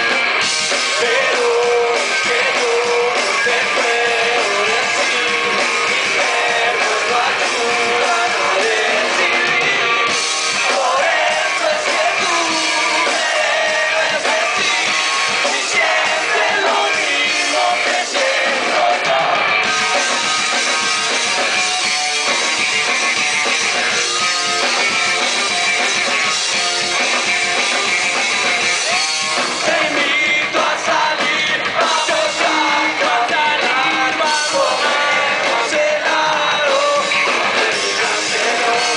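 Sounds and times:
drums: 0.0 - 38.9
electric guitars: 0.0 - 38.9
person shouting singing: 10.6 - 14.7, 15.4 - 19.5.

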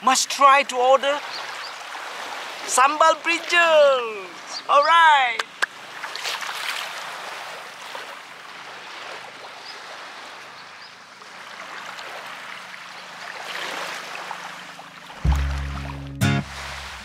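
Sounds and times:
small waves lapping on a beach: 0.0 - 17.0.

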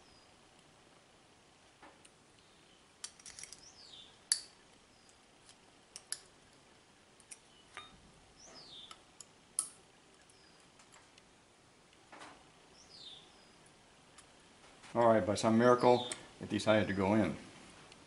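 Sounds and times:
metal clicks of gun parts: 3.0 - 3.7, 4.3 - 4.6, 5.4 - 6.3, 8.9 - 9.8.

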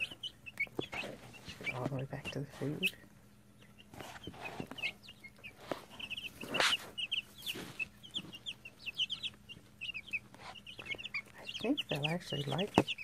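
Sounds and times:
chicks peeping: 0.0 - 13.0.

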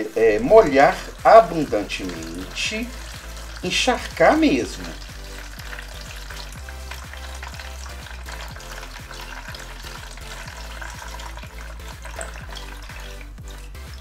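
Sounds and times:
background music beat: 0.0 - 14.0
water splashing into a sieve: 0.6 - 14.0.

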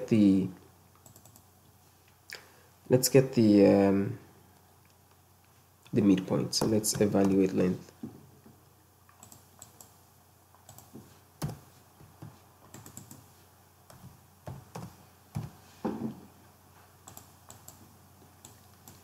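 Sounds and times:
computer keyboard typing: 1.0 - 1.5, 6.6 - 7.4, 9.1 - 10.0, 10.6 - 13.3, 17.0 - 17.8, 18.4 - 19.0.

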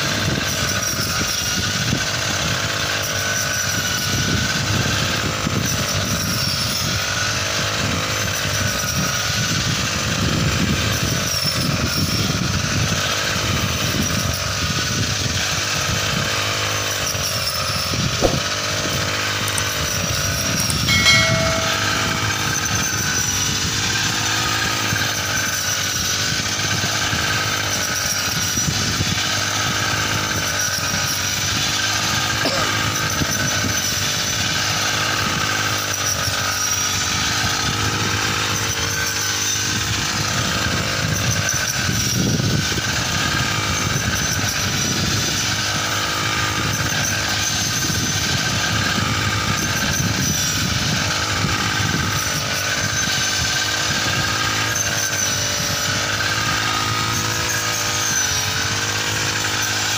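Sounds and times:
small engine running: 0.0 - 59.9
brief knock: 18.2 - 18.4
sharp click: 18.2 - 18.5.

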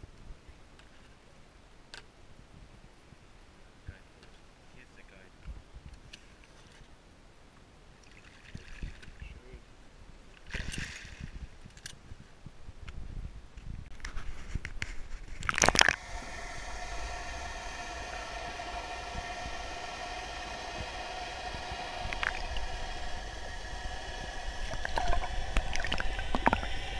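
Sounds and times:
steady underwater tones: 15.3 - 26.9
loud splash: 15.4 - 26.9
muffled underwater noise: 15.6 - 26.9
water splashing at boat side: 24.6 - 26.9.

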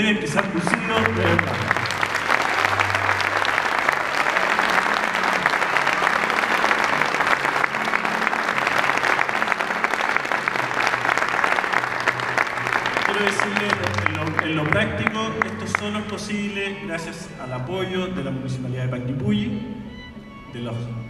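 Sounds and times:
crowd applauding: 0.0 - 16.6.

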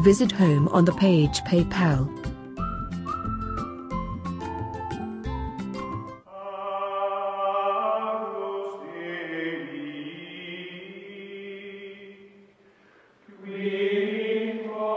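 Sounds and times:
choir chanting in held chords: 6.3 - 12.4, 13.3 - 14.9.

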